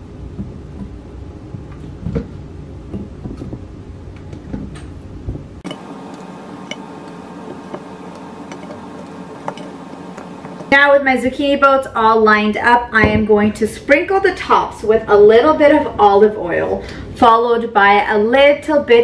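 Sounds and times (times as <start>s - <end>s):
quiet hum: 0.0s - 11.7s
low steady rumble: 0.0s - 12.2s.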